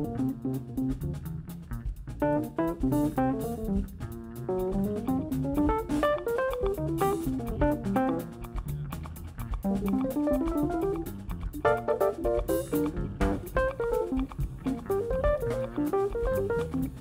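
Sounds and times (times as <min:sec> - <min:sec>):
drum and percussion hits: 0:00.0 - 0:17.0
fast melodic line: 0:00.0 - 0:17.0
walking bass line: 0:00.0 - 0:17.0.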